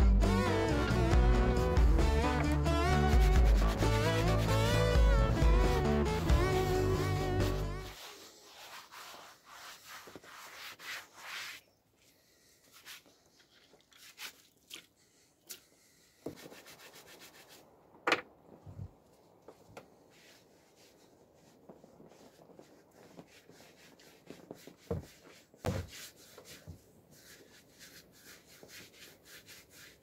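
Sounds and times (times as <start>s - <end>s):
hands washing in water: 13.3s - 15.7s.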